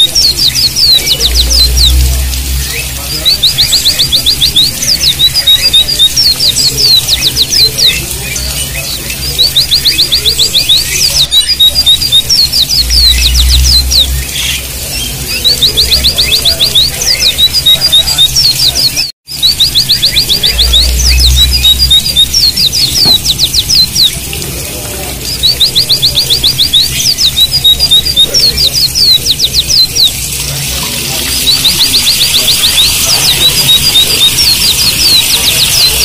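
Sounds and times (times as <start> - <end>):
birds singing high notes: 0.0 - 36.0
flowing water hiss: 20.0 - 36.0.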